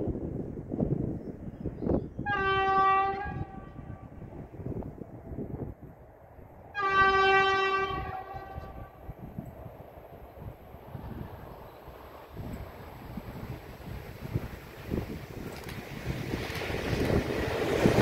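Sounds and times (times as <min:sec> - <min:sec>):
electric locomotive horn blasts: 0:02.2 - 0:04.2, 0:06.7 - 0:09.0.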